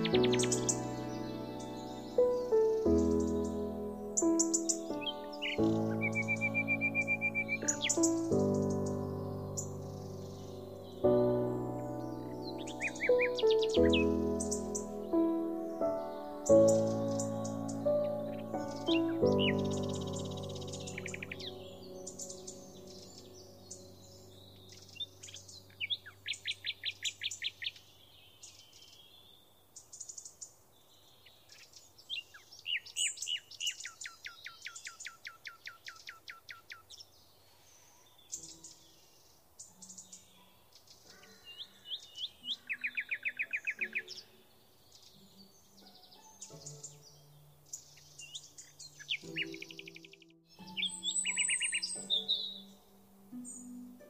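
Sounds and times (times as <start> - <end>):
bird trills: 0.0 - 27.8, 45.1 - 54.0
bird chirps: 0.0 - 54.0.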